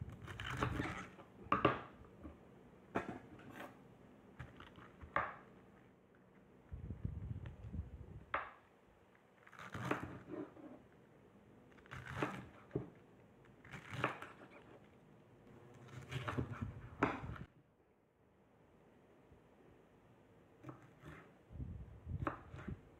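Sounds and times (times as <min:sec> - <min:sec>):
knife cutting cabbage on board: 0:00.1 - 0:01.9, 0:09.4 - 0:10.8, 0:11.8 - 0:13.0, 0:13.6 - 0:14.9, 0:15.8 - 0:17.4, 0:20.6 - 0:21.4, 0:22.1 - 0:22.9.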